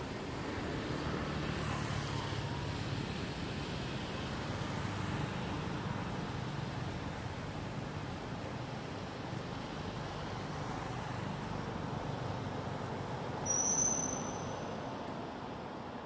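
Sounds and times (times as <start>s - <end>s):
distant traffic: 0.0s - 16.0s
high thin whistled note: 13.4s - 14.8s.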